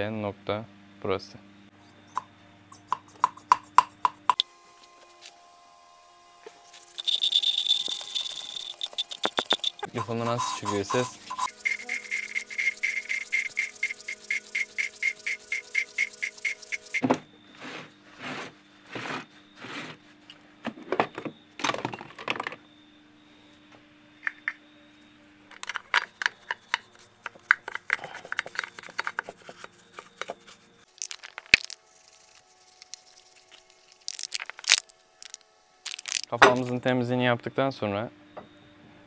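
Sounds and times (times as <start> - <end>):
valve grinding scraping: 6.6 - 20.0, 28.4 - 36.4
rhythmic beat: 7.8 - 17.0.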